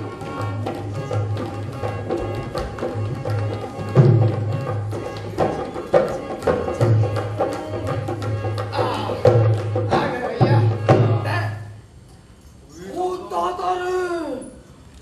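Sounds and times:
folk music: 0.0s - 11.6s
hand-drum beats: 0.0s - 11.7s.

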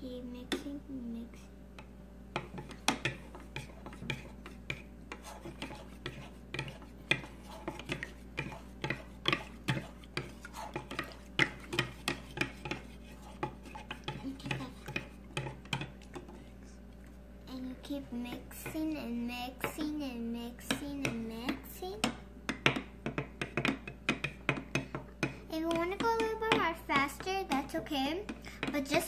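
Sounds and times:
spoon scraping plastic bowl: 2.6s - 16.6s.

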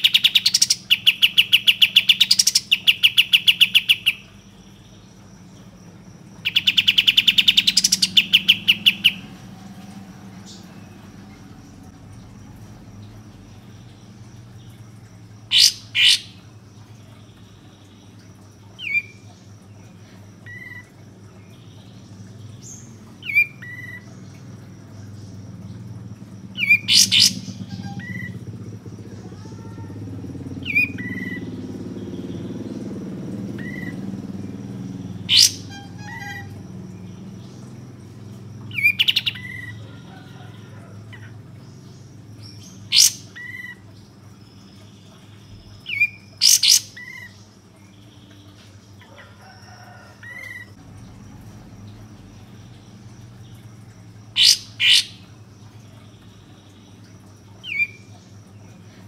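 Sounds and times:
soft bird chirps: 0.0s - 25.8s
low background rumble: 3.9s - 49.0s
bird calling sharp notes: 15.5s - 16.4s, 35.2s - 36.7s, 54.4s - 55.3s.

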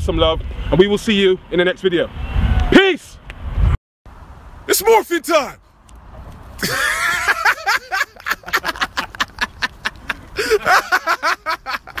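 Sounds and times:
short laughing bursts: 6.6s - 12.0s.

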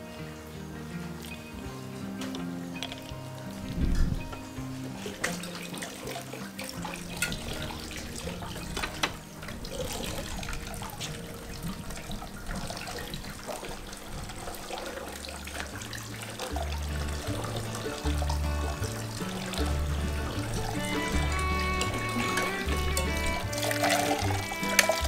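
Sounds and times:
background music with bass: 0.0s - 13.4s, 15.1s - 25.0s
water splashing into buckets: 1.2s - 25.0s.

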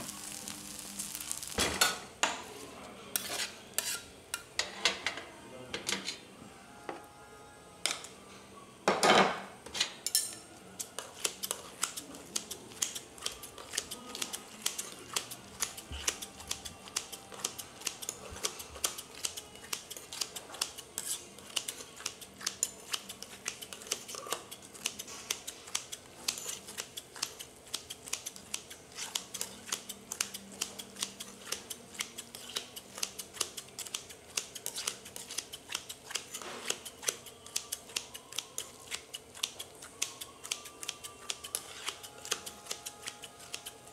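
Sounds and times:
metal spatulas tapping griddle: 10.0s - 38.6s.

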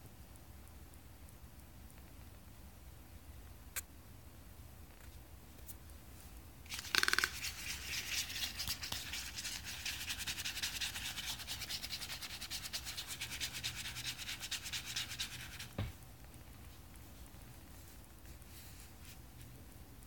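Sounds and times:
fingers rubbing a bird's bill: 6.7s - 15.7s
soft thump: 15.8s - 16.0s.

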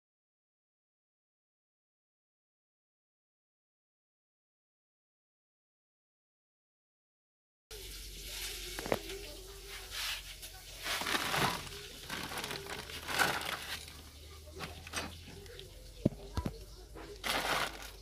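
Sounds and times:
plastic bags rustling: 8.4s - 18.0s.

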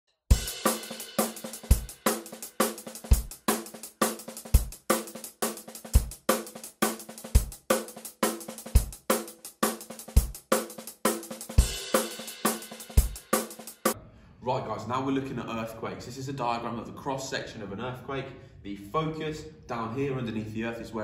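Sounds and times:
intro music with drum beat: 0.3s - 14.0s.

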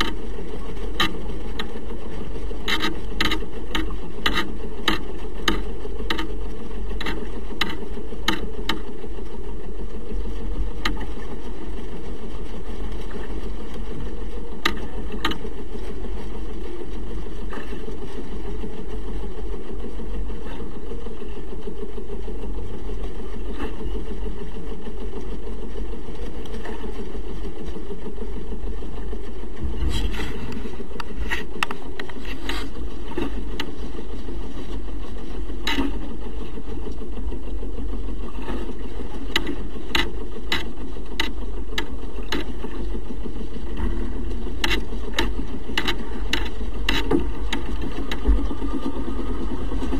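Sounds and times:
wind and sea rumble: 0.0s - 49.9s.

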